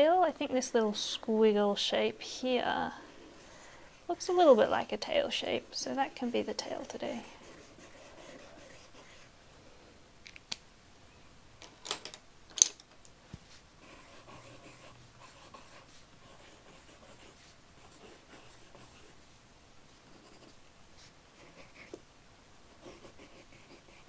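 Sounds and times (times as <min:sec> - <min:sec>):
pencil scratching on paper: 0:05.5 - 0:09.3, 0:13.8 - 0:19.2, 0:20.1 - 0:22.0, 0:22.7 - 0:24.0.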